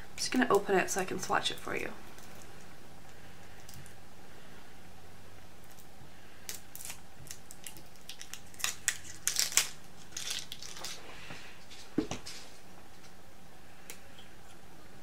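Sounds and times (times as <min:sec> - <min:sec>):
packaging crinkling: 0:06.5 - 0:11.1.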